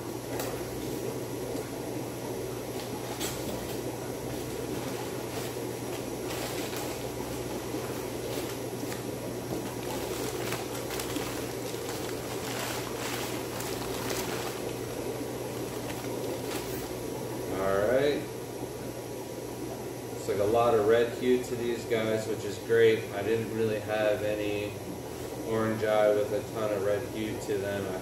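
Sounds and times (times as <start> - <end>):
low background noise: 0.0 - 28.0
paper and cardboard crinkling: 4.7 - 17.0.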